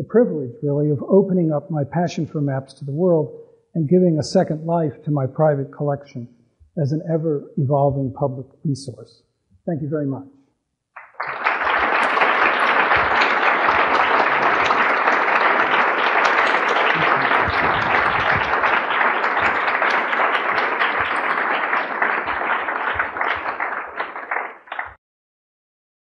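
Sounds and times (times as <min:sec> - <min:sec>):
audience applauding: 0:11.0 - 0:25.0.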